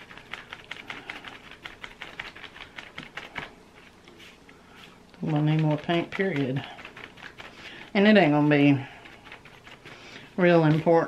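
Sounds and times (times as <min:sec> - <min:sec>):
paintbrush scratching on paper plate: 0:00.0 - 0:11.0.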